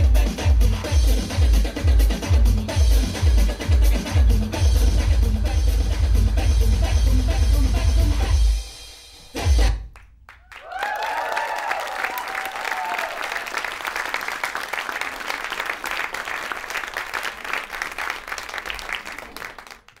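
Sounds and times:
audience applauding: 0:09.9 - 0:20.0
audience cheering: 0:10.4 - 0:19.6.

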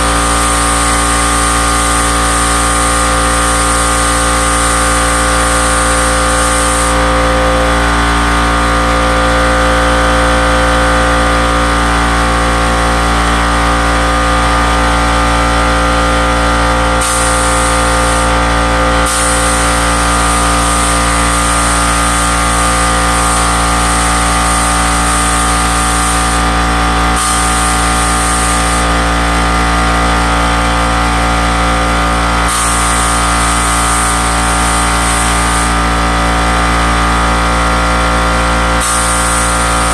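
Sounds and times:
air compressor hum: 0:00.0 - 0:39.9
spray gun air hissing: 0:00.1 - 0:07.0, 0:17.0 - 0:18.4, 0:19.0 - 0:26.4, 0:27.2 - 0:28.9, 0:32.5 - 0:35.7, 0:38.8 - 0:39.9.

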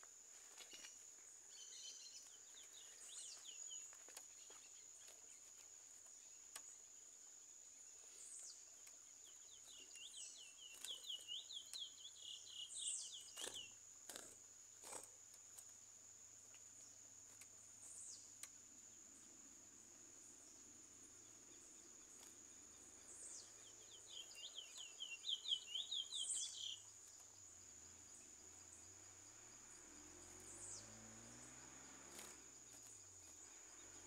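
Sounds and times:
high insect drone: 0:00.0 - 0:34.0
finch singing whistled notes: 0:09.2 - 0:13.8, 0:23.1 - 0:26.9.

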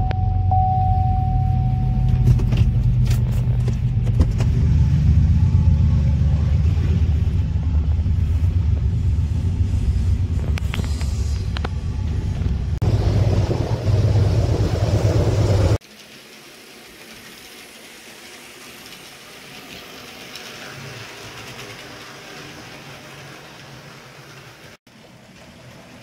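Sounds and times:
freight train rumbling past: 0:03.4 - 0:15.8.

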